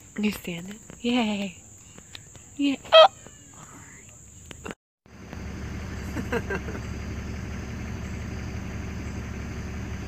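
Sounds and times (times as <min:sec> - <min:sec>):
low machine hum: 0:05.1 - 0:10.0.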